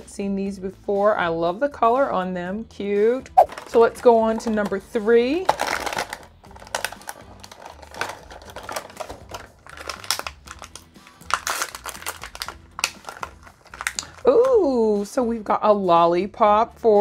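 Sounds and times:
soft background music: 0:00.0 - 0:17.0
plastic wrapper crinkling and tearing: 0:05.5 - 0:14.6.

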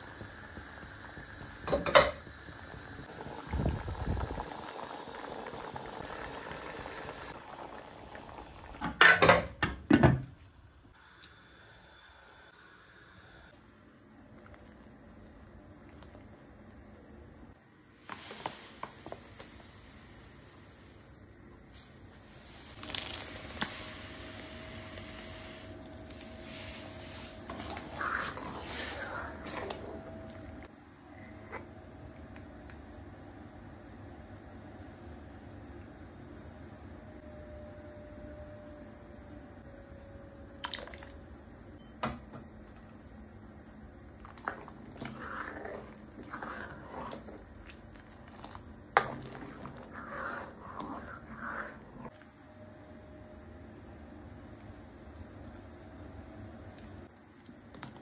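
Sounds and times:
ladle stirring thick milk: 0:44.2 - 0:52.2.

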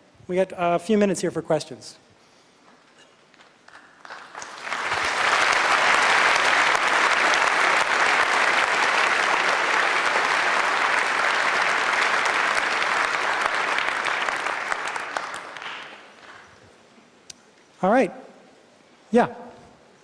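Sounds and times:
audience applauding: 0:03.7 - 0:16.5.

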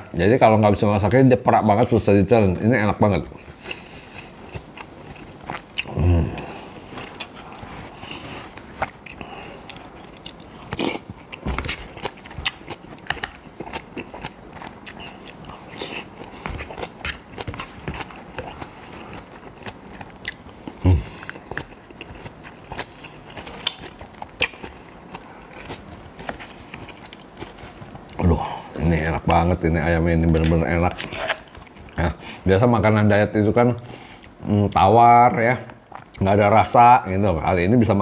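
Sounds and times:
close-up chewing: 0:03.3 - 0:32.5, 0:33.8 - 0:34.8.

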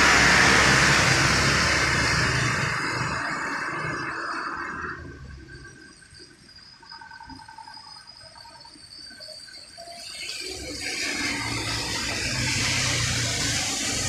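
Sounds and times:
low engine rumble: 0:00.0 - 0:05.6
tyres hissing through water: 0:00.0 - 0:06.0, 0:08.3 - 0:14.0.

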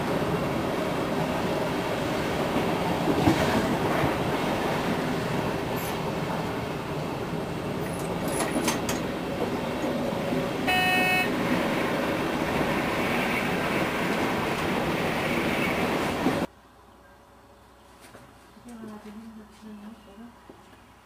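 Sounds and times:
diesel locomotive running: 0:00.0 - 0:17.7
train horn blast: 0:10.7 - 0:11.3.

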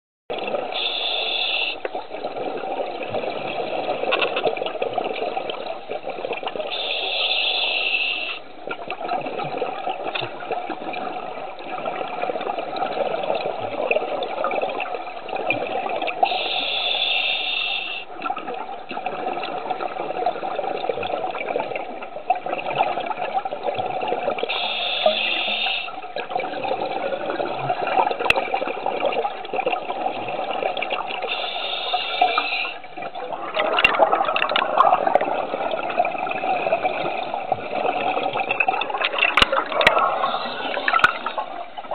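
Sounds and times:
exhaled bubbles gurgling underwater: 0:00.3 - 0:41.9
regulator hiss of inhalation: 0:00.8 - 0:01.8, 0:06.8 - 0:08.4, 0:16.3 - 0:18.1, 0:24.5 - 0:26.0, 0:31.3 - 0:32.8.

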